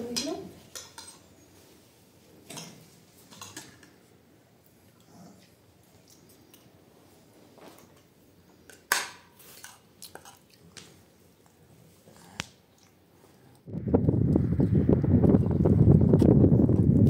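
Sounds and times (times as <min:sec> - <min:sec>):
quiet chewing: 0:03.2 - 0:13.7.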